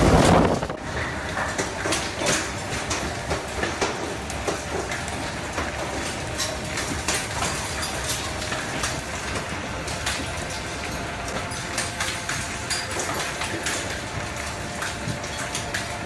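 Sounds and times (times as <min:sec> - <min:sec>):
storm roar: 0:00.0 - 0:01.0
knocks and rattles on building: 0:00.0 - 0:16.0.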